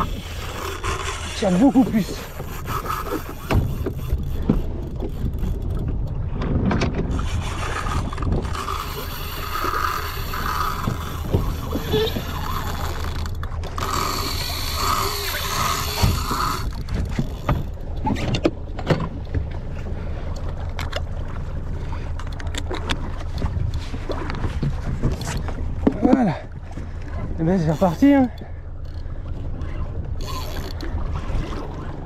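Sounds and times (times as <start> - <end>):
fishing reel clicks and knocks: 0.0 - 6.2, 7.7 - 18.5, 30.2 - 30.9
boat engine hum: 0.0 - 32.0.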